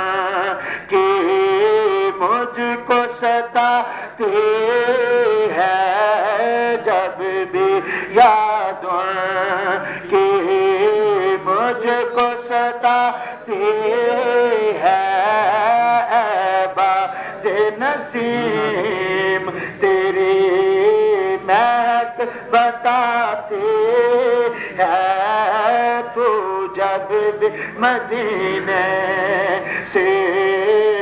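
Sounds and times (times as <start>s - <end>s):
man singing into a microphone: 0.0s - 31.0s.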